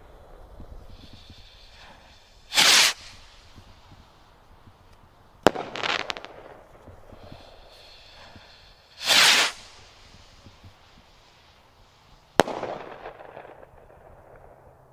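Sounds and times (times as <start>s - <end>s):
firework crackle after burst: 0.0s - 14.9s
rocket launch whoosh: 1.8s - 3.6s, 8.9s - 10.4s
rocket bursting bang: 5.4s - 7.5s, 12.4s - 14.4s.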